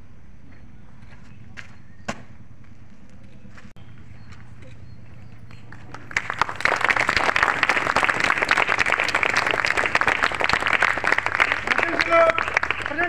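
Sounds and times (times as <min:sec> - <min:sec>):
crowd applauding: 0:04.7 - 0:13.0.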